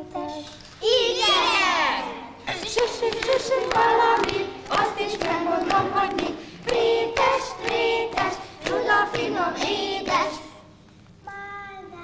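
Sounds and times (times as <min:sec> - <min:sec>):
children singing in unison: 0:00.8 - 0:10.7
hands clapping: 0:02.5 - 0:10.3.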